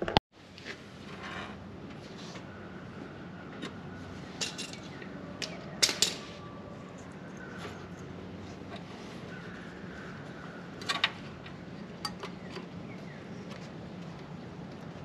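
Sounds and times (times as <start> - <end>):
steady low hum: 0.4 - 15.0.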